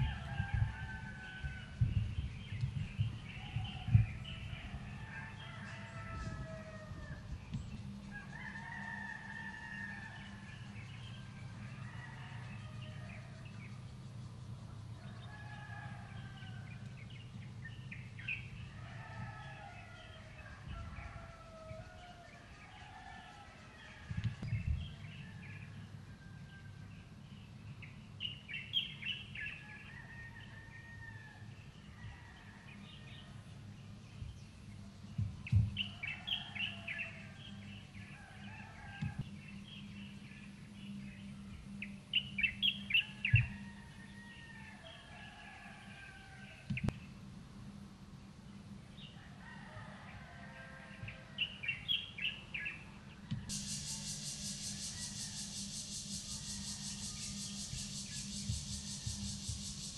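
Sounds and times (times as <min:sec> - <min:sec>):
songbird chirping: 0:00.0 - 0:59.9
low steady hum: 0:31.2 - 0:45.1.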